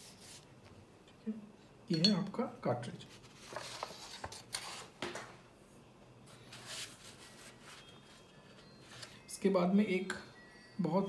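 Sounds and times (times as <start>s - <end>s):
paper rustling: 3.1s - 5.2s, 6.3s - 9.2s.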